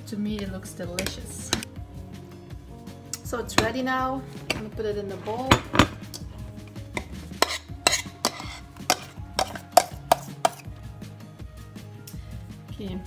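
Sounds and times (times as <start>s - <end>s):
metal spoon scraping a pot: 3.5s - 10.7s.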